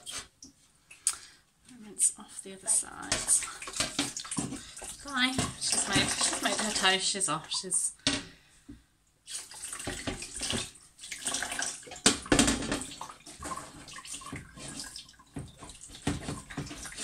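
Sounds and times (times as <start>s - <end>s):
tap water splashing on glass: 3.0s - 7.0s, 9.3s - 17.0s.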